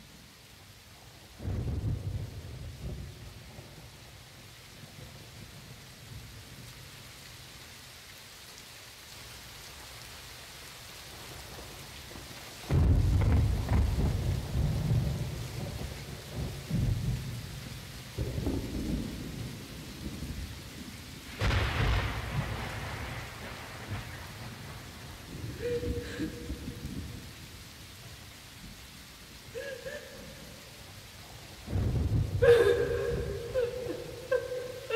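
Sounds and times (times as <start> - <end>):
steady rain hiss: 0.0 - 34.9
sharp thunder crack: 12.7 - 15.1, 21.4 - 25.6
thunderclap rolling: 12.7 - 17.4, 18.2 - 20.4, 21.3 - 27.3, 31.6 - 34.9.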